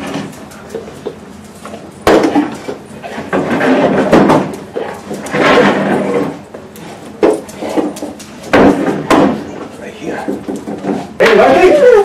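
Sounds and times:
wooden boxes knocking and bumping: 0:03.3 - 0:06.4, 0:07.2 - 0:11.4.

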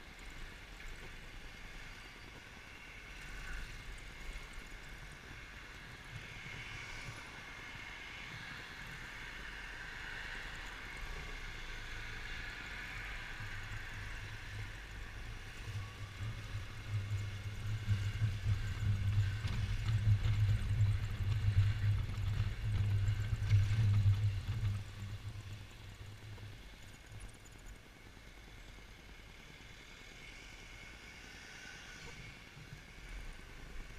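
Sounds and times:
wind noise on microphone: 0:12.7 - 0:26.6.

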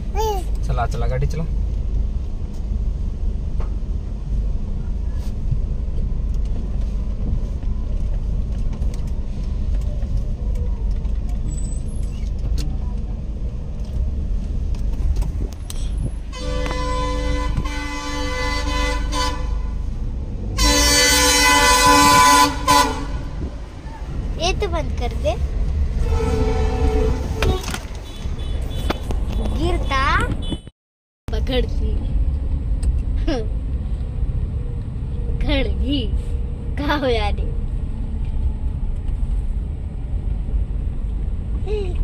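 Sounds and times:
car driving rumble from inside: 0:00.0 - 0:30.7, 0:31.3 - 0:42.0
car horn honking: 0:16.3 - 0:19.8, 0:20.6 - 0:23.5, 0:26.0 - 0:30.7.

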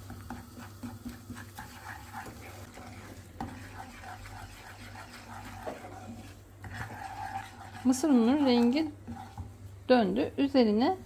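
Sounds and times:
wooden spoon scraping a pan: 0:00.0 - 0:09.6
soft sizzle: 0:00.0 - 0:11.0.

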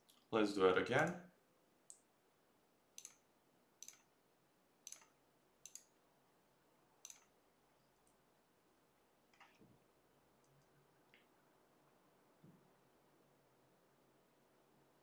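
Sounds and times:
computer mouse clicks: 0:03.0 - 0:04.1, 0:04.8 - 0:06.0, 0:07.0 - 0:07.4.

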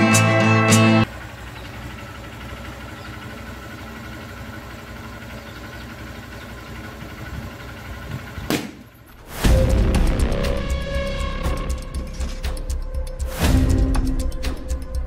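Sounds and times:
motorcycle engine idling: 0:01.0 - 0:10.7.

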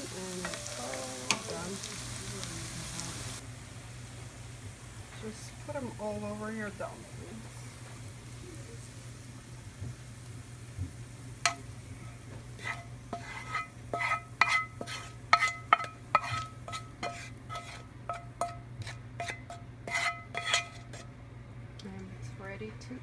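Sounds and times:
spatula scraping a frying pan: 0:11.5 - 0:21.1.

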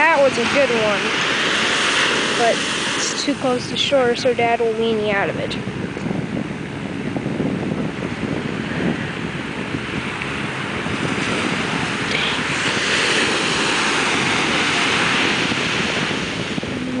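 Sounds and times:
ocean surf breaking: 0:00.0 - 0:17.0
wind rumbling on microphone: 0:00.0 - 0:17.0.

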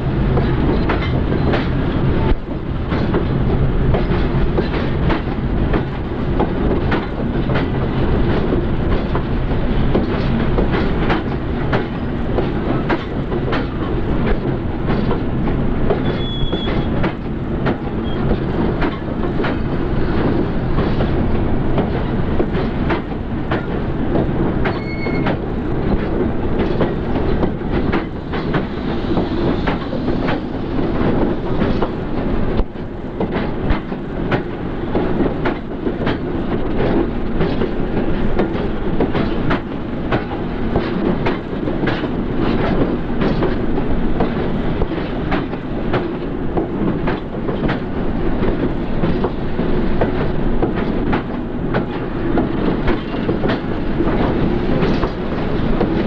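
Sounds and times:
train rumble: 0:00.0 - 0:56.0
train wheels clicking over rail joints: 0:00.0 - 0:56.0
wheel squeal: 0:16.0 - 0:16.9, 0:24.7 - 0:25.3.

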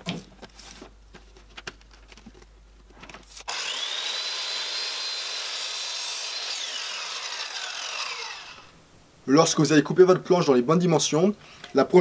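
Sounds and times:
miter saw cutting wood: 0:03.4 - 0:08.7.

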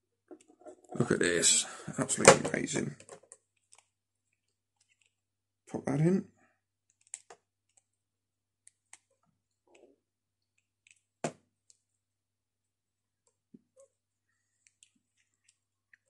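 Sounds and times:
plastic parts clicking and tapping: 0:02.2 - 0:03.9.

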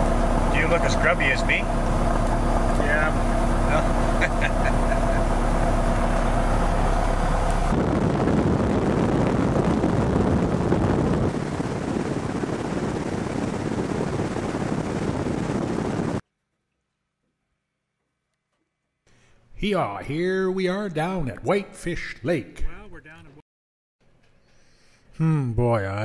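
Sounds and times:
airplane engine running: 0:00.0 - 0:16.2
wind and water spray rushing: 0:05.4 - 0:16.2.

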